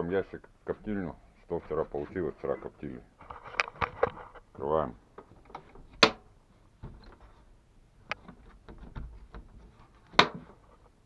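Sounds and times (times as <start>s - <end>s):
knocks of wooden box handled: 5.2s - 7.4s, 8.1s - 10.6s.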